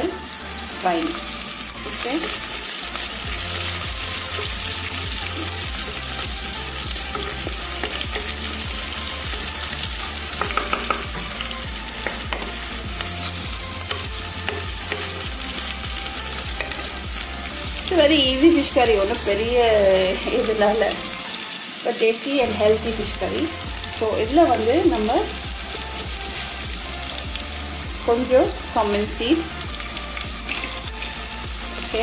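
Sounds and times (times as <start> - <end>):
shallots sizzling in hot oil: 0.0 - 32.0.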